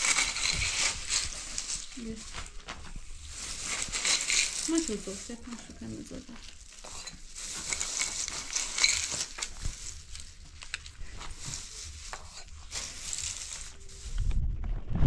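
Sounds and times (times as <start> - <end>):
plastic bags rustling: 0.0 - 14.4
nuts clicking into bowls: 6.4 - 9.6.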